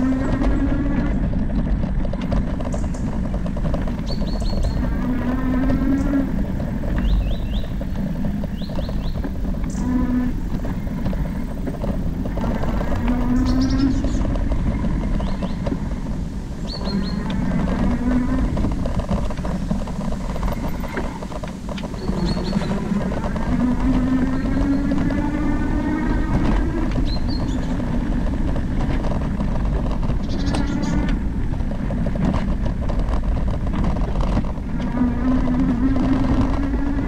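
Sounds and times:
electric motor whine: 0:00.0 - 0:01.4, 0:02.1 - 0:37.0
tyre rumble on dirt: 0:00.0 - 0:37.0
wind: 0:00.0 - 0:37.0
birds chirping: 0:02.2 - 0:37.0.

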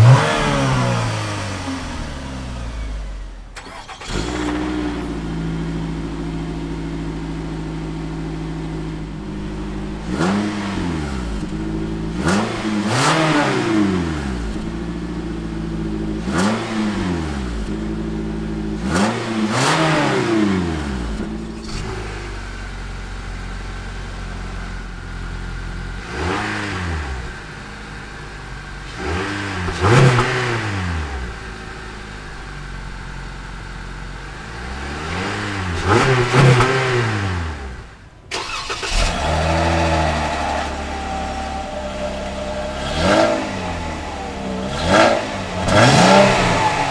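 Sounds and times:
car exhaust idling and revving: 0:00.0 - 0:46.9
second car exhaust idling: 0:04.6 - 0:10.2, 0:10.8 - 0:12.3, 0:39.6 - 0:46.9.

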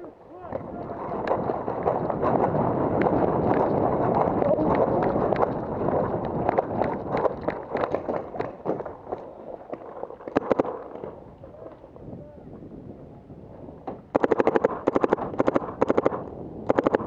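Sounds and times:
paintball markers popping: 0:01.2 - 0:11.2, 0:14.2 - 0:17.0.

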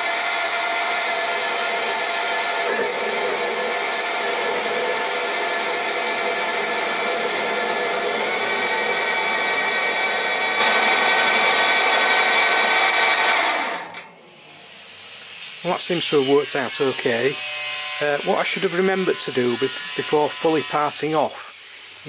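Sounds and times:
lathe motor whine: 0:00.0 - 0:14.0
metal cutting noise: 0:00.0 - 0:14.7, 0:15.4 - 0:22.0.

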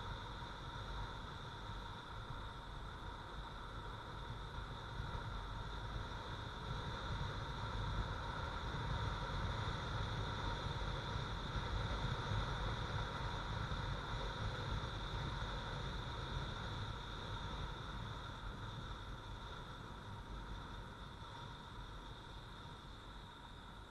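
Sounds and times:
wind and road noise: 0:00.0 - 0:23.9.

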